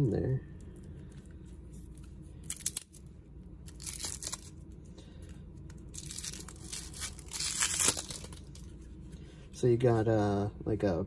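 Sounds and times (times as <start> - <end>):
plastic wrap tearing and crinkling: 2.4 - 4.6, 5.8 - 8.8.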